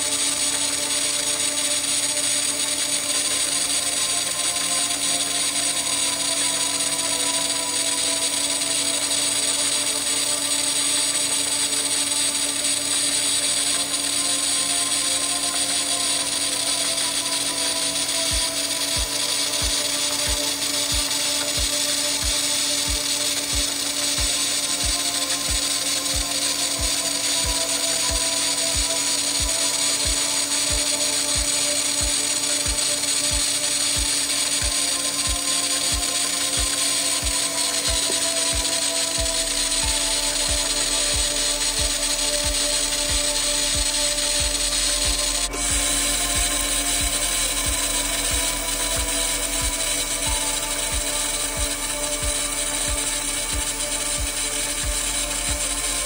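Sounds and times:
welding arc hiss: 0.0 - 56.0
welding hum: 0.0 - 56.0
music with kick-drum beat: 17.8 - 56.0.

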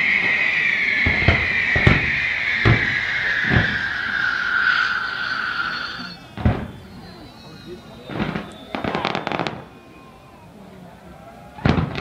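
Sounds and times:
firework whistle dropping in pitch: 0.0 - 10.5
dull firework bangs: 0.2 - 4.8, 6.2 - 7.1, 8.0 - 9.8, 11.6 - 12.0.

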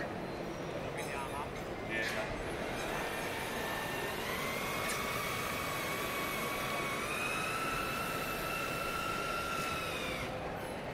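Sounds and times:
electric drive motors whining: 2.4 - 10.9.

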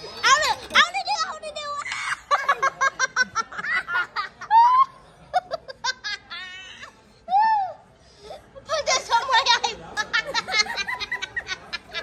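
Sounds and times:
hearty laughter: 2.3 - 6.7, 9.3 - 12.0.

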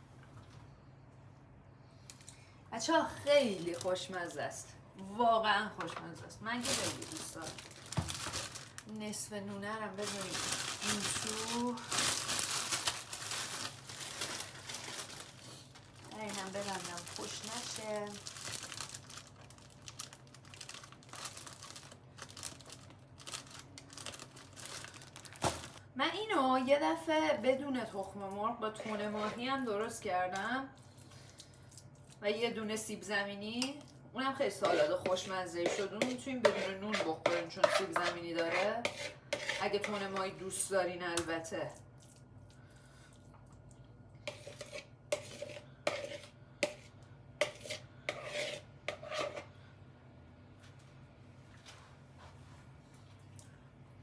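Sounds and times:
plastic bag crinkling: 6.5 - 9.1, 9.8 - 25.9
spoon scraping plastic bowl: 28.8 - 29.6, 34.6 - 40.3, 44.3 - 49.5.

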